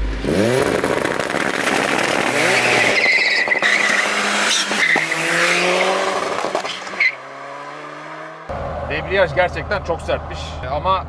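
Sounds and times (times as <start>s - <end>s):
tyre squeal: 2.4s - 6.0s, 6.6s - 7.2s
car engine accelerating hard: 3.7s - 10.7s.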